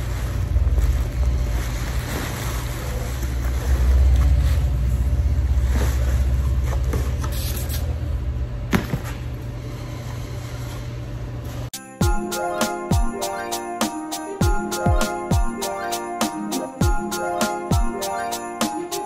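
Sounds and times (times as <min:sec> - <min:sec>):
rustling of bubble wrap: 0:00.0 - 0:07.8.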